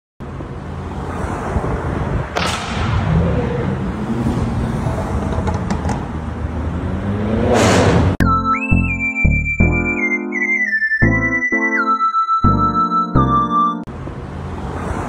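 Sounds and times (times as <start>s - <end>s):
car engines and exhausts in tunnel: 0.2s - 8.2s, 13.9s - 15.0s
sharp bang: 2.4s - 3.4s.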